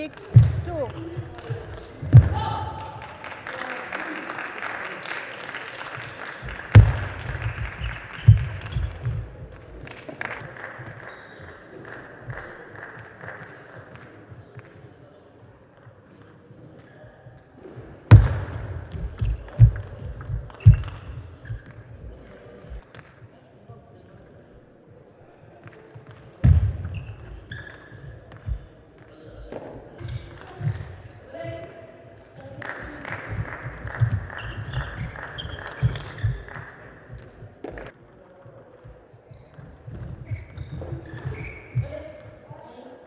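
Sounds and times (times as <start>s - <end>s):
ball bounce: 0.0s - 2.5s, 6.7s - 10.0s, 18.1s - 23.2s, 25.6s - 31.0s, 32.8s - 37.9s
dull thumps: 6.8s - 7.7s.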